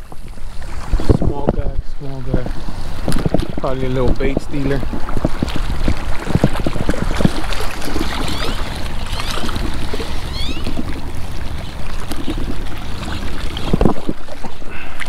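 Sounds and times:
wind buffeting microphone: 0.0 - 15.0
high chirps: 8.2 - 10.8.

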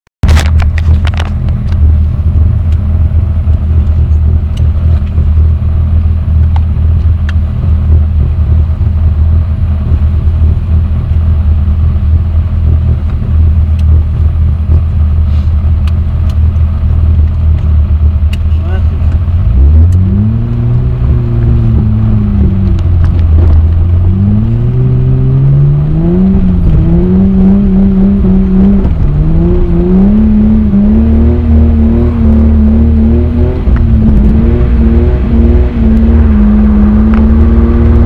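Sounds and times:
car engine idling: 0.3 - 38.0.

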